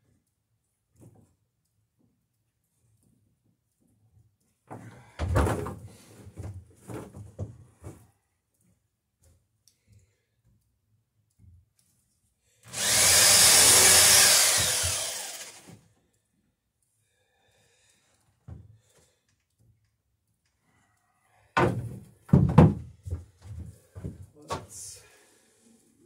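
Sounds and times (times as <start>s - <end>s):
electric drill whining: 12.7s - 15.8s
hammer driving nails into wood: 12.7s - 15.8s.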